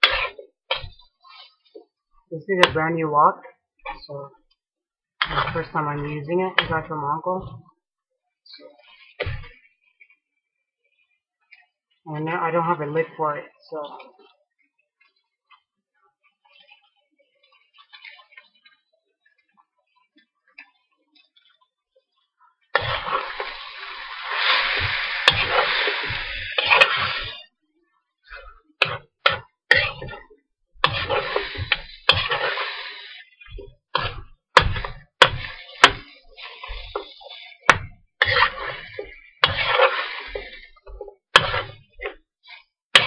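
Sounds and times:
spatula clanking on a pan: 0.0s - 1.0s, 24.6s - 27.4s, 28.4s - 42.2s
spatula scraping a wok: 0.0s - 1.9s, 5.2s - 7.6s, 8.5s - 10.3s, 16.4s - 18.7s, 22.7s - 27.6s, 28.2s - 43.0s.

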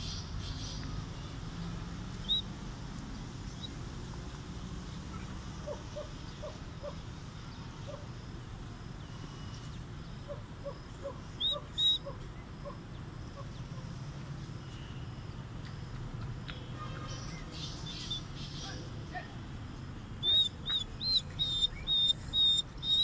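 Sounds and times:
steady low hum: 0.0s - 23.0s
high bird chirps: 2.2s - 2.5s, 11.3s - 12.0s, 20.2s - 23.0s.

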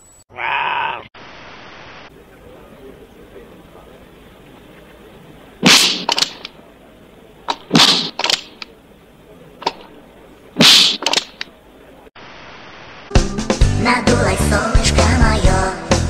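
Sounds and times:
sharp loud cracks: 5.6s - 6.6s, 7.5s - 8.7s, 9.6s - 9.9s, 10.6s - 11.5s.

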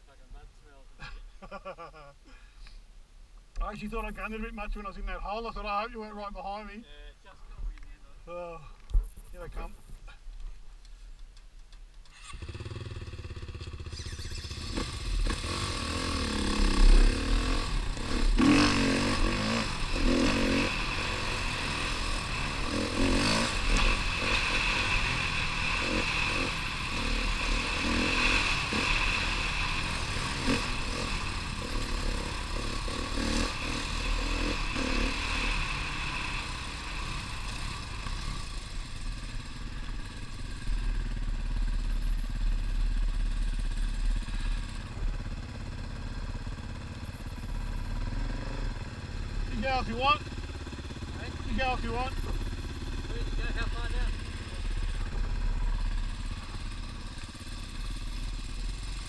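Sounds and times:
dirt bike engine revving: 12.1s - 59.0s.

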